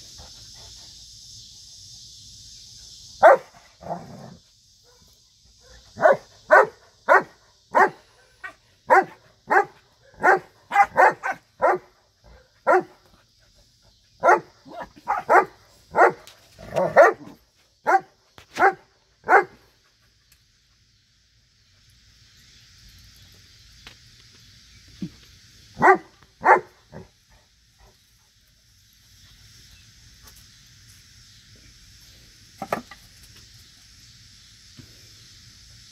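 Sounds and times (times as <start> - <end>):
dogs barking: 3.2 - 3.5, 4.9 - 13.0, 14.2 - 19.6, 25.8 - 27.0.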